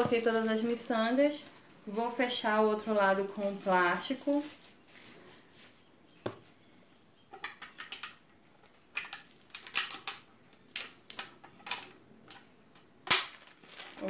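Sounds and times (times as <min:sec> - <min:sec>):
plastic film crinkling: 0:00.0 - 0:01.7, 0:03.1 - 0:05.9, 0:08.6 - 0:12.0, 0:13.1 - 0:14.0.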